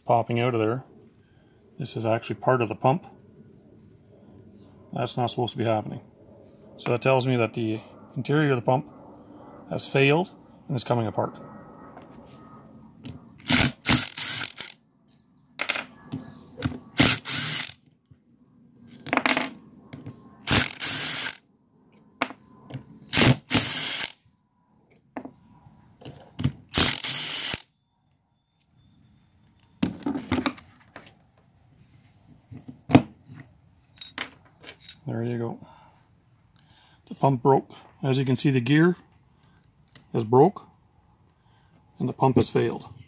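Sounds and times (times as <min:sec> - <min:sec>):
cordless power driver bursts: 0:13.4 - 0:14.8, 0:17.0 - 0:17.8, 0:20.5 - 0:21.4, 0:23.1 - 0:24.2, 0:26.7 - 0:27.6.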